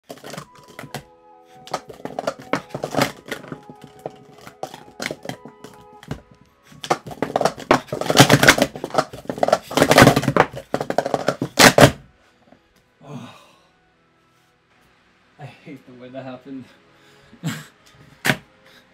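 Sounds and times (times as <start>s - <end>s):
plastic cups clacking: 0.0s - 1.0s, 1.6s - 12.0s
background music: 0.0s - 18.9s.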